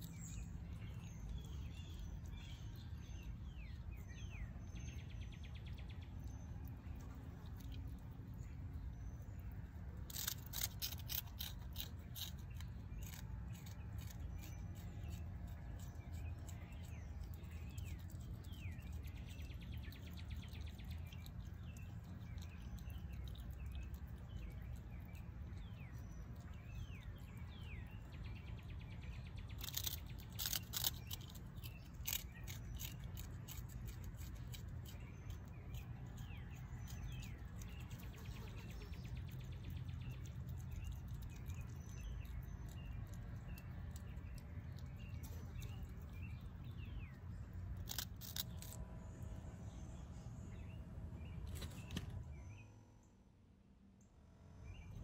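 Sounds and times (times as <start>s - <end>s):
steady low hum: 0.0s - 55.0s
opossum chewing and smacking: 5.6s - 48.8s.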